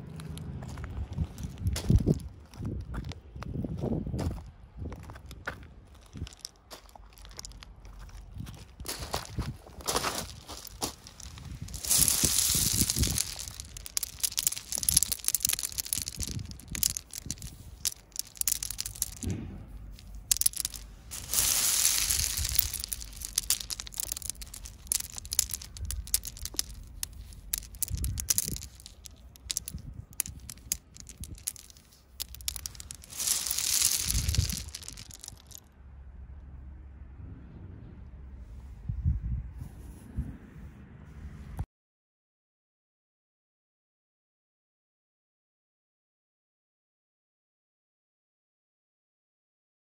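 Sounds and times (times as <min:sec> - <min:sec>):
pebbles clattering: 0:00.2 - 0:03.2, 0:04.9 - 0:35.6
stones sliding and pouring: 0:00.2 - 0:03.2, 0:05.2 - 0:35.6.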